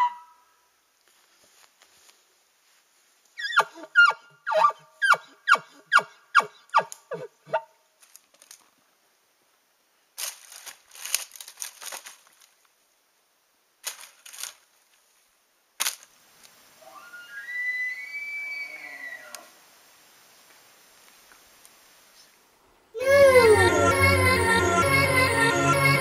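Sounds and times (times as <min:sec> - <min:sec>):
rustling: 0:01.0 - 0:03.4, 0:07.9 - 0:09.0, 0:10.1 - 0:12.9, 0:13.8 - 0:16.7.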